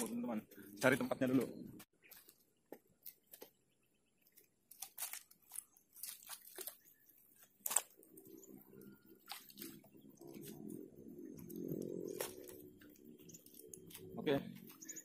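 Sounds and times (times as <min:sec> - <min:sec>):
handling clicks and crackles: 0:04.2 - 0:15.0.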